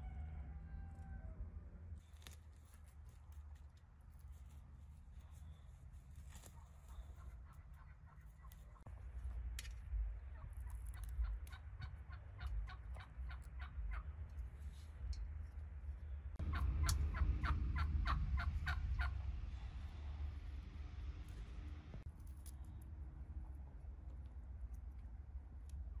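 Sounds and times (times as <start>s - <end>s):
turkeys gobbling: 6.5s - 8.9s, 10.3s - 14.2s, 16.4s - 19.3s
low rumble: 8.5s - 26.0s.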